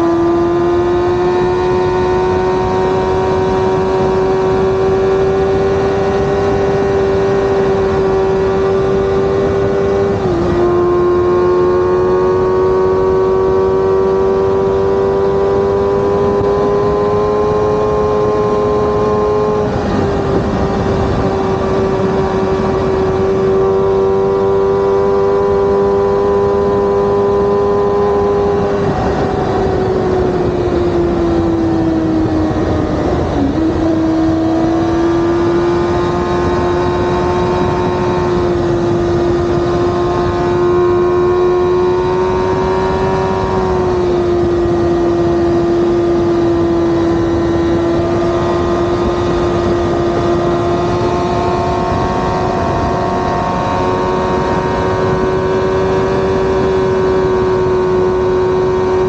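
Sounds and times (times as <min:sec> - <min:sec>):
motorcycle engine cruising: 0:00.0 - 0:59.0
wind and road noise: 0:00.0 - 0:59.0.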